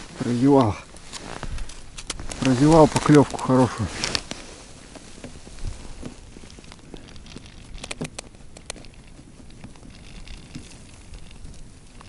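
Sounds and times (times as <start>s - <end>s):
clothing rustling: 0.0s - 7.4s
faint handling clicks: 0.2s - 12.0s.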